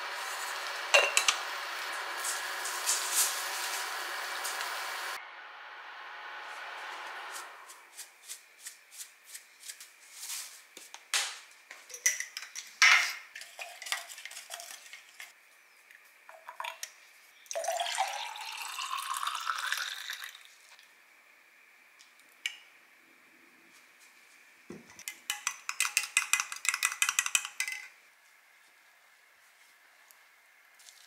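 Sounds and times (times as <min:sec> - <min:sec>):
drink pouring into glass: 0:17.5 - 0:20.8.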